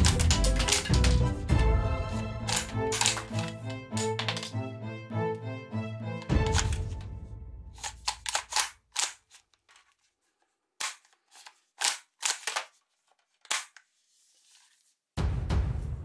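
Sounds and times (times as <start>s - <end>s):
toy rifle bolt clicking: 0.0s - 1.2s, 2.4s - 4.6s, 7.8s - 9.4s, 11.8s - 12.7s.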